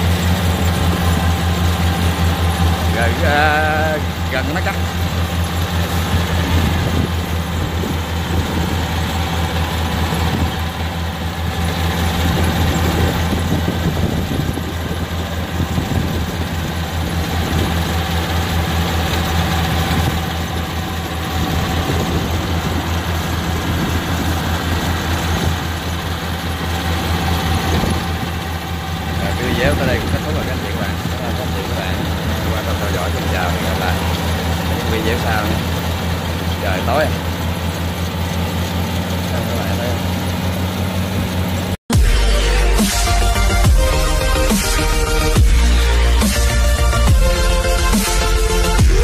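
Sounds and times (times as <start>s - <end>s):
combine harvester running: 0.0s - 49.0s.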